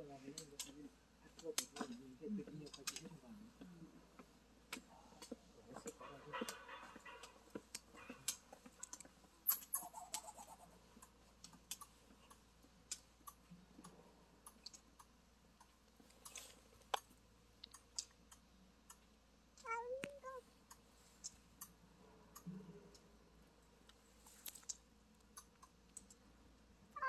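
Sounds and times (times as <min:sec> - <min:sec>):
faint clicks and ticks: 0:00.2 - 0:26.7
cat meowing: 0:19.6 - 0:20.4.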